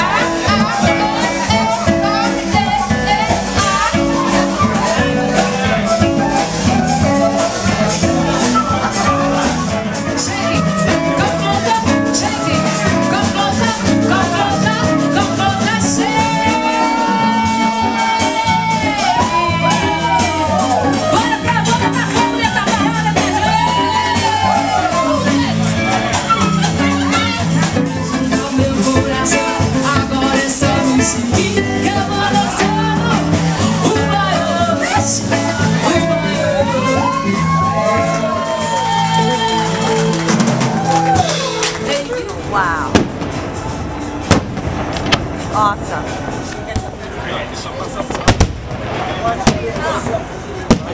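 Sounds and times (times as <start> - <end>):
person singing: 0.0 - 40.7
electric guitar: 0.0 - 50.9
live band playing dance music: 0.0 - 50.9.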